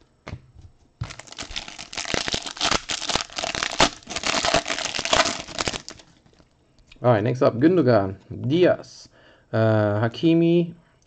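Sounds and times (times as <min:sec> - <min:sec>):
foil wrapper crinkling and tearing: 0:01.0 - 0:06.4.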